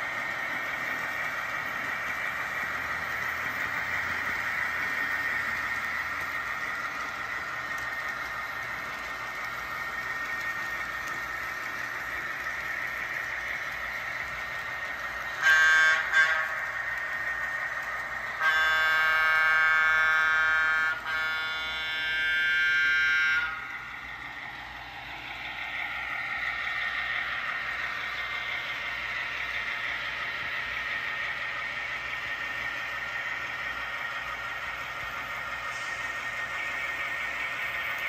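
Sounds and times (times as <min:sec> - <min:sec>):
model trains humming: 0:00.0 - 0:38.0
model train horn blasts: 0:15.3 - 0:16.8, 0:18.3 - 0:23.9.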